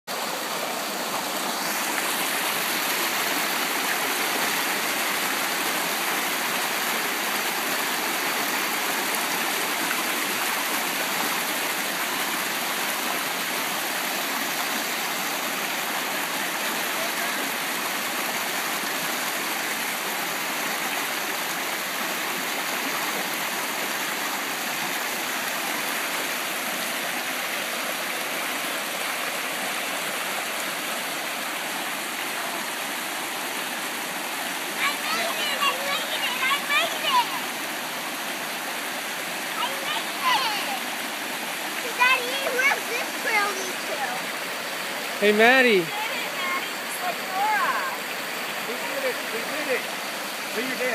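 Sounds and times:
stream rushing over rocks: 0.1 - 50.9.

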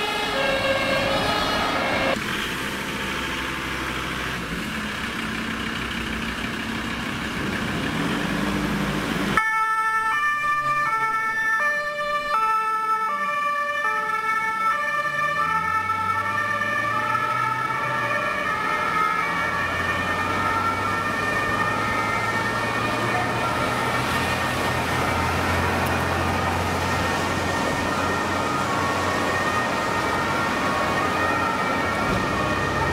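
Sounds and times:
two-tone ambulance siren: 0.0 - 2.2, 9.3 - 32.9
vehicle engine running: 2.1 - 9.4.

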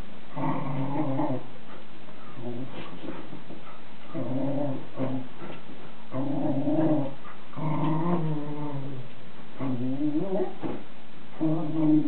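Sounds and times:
dog growling: 0.3 - 1.5, 4.1 - 10.7, 11.4 - 12.0.

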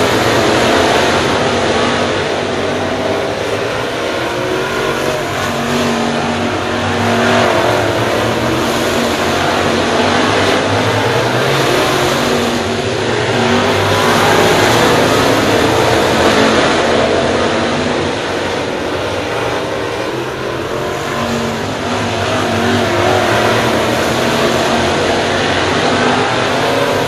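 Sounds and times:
race car engines: 0.0 - 27.0.

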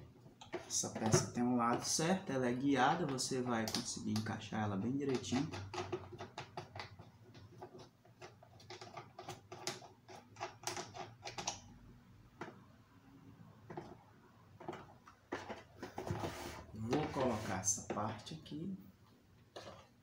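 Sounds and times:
plastic parts clicking and tapping: 2.8 - 4.4, 5.0 - 11.7, 14.6 - 16.2.

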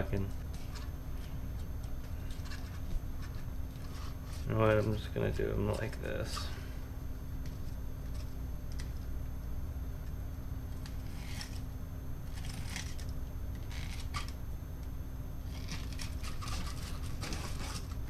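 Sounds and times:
steady low hum: 0.0 - 18.0
knife scraping through fish: 15.5 - 18.0.

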